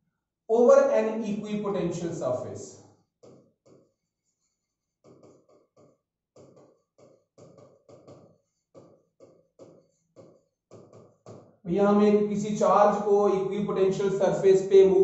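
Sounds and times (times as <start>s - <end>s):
stylus tapping and scraping on glass: 5.0s - 11.6s.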